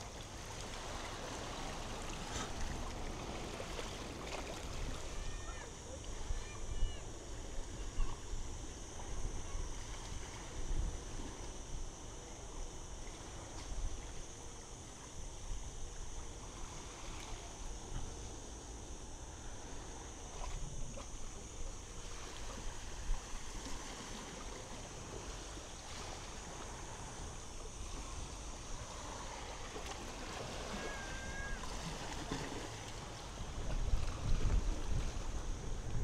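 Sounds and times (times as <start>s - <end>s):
small waves washing onto sand: 0.0s - 6.6s, 19.4s - 36.0s
wind rumbling on microphone: 19.4s - 36.0s.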